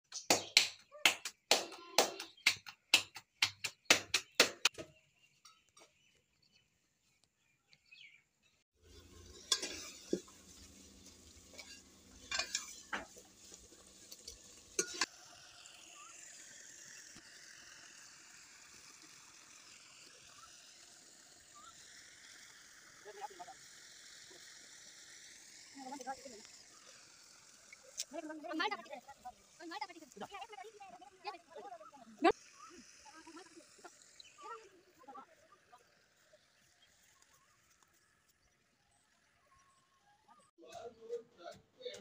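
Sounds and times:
hands slapping dough: 0.1s - 4.8s
steel ladle clinking on pot: 9.3s - 10.3s, 14.8s - 15.1s.

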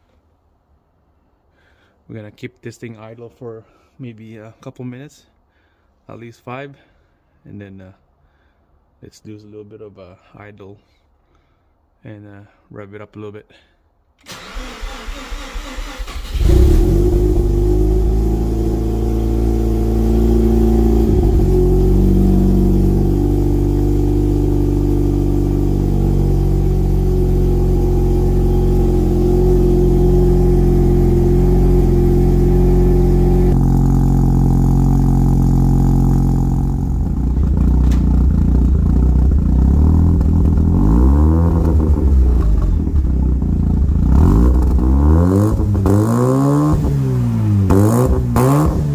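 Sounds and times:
engine revving: 14.4s - 48.9s.

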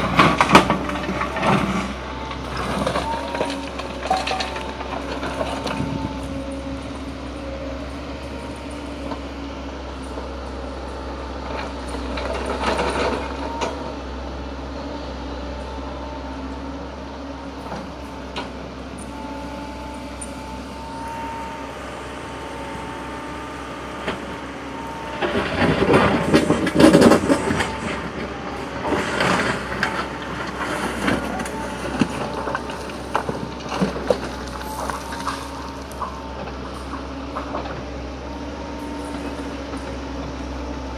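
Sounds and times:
excavator engine running: 0.0s - 40.9s
bucket scraping dirt and rock: 23.8s - 35.9s.

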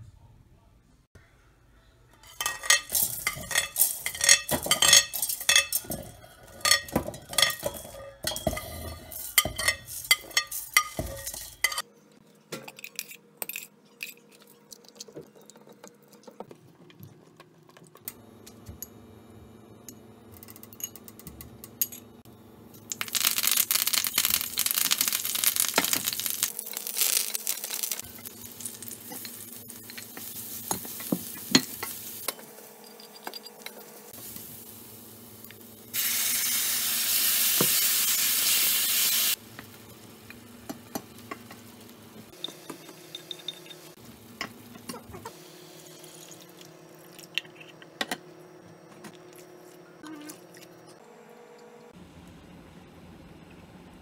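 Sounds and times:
loud sizzle in steel pan: 22.9s - 32.4s, 34.0s - 42.1s.

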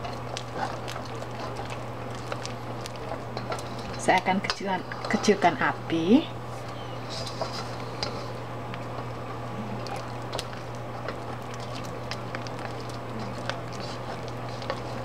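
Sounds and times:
spatula stirring sticky paste: 11.0s - 15.0s.

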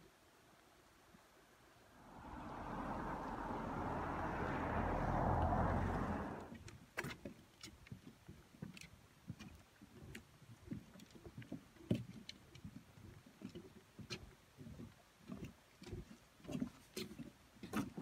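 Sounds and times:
footsteps on wooden boardwalk: 6.5s - 18.0s.

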